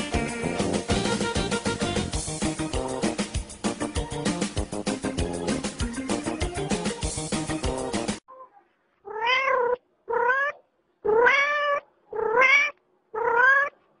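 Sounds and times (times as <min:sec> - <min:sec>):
background music: 0:00.0 - 0:08.2
cat meowing: 0:09.1 - 0:13.8.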